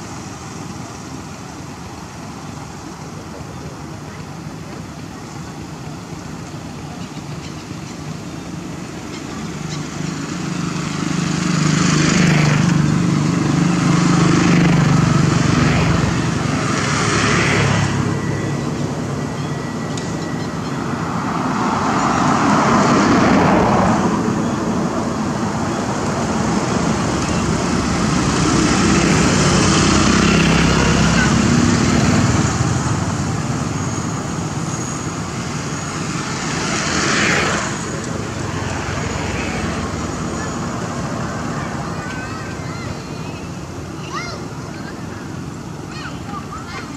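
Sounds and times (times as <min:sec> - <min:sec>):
traffic engine hum and road noise: 0:00.0 - 0:46.9.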